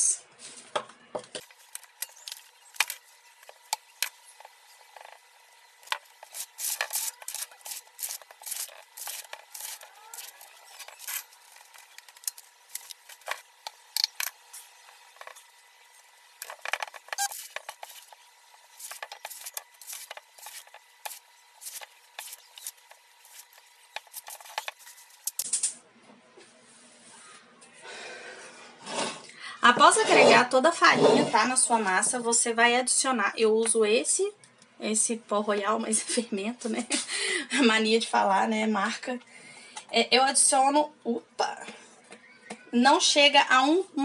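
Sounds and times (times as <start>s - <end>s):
metal sieve rattling over bowl: 5.8s - 13.4s, 16.4s - 25.6s.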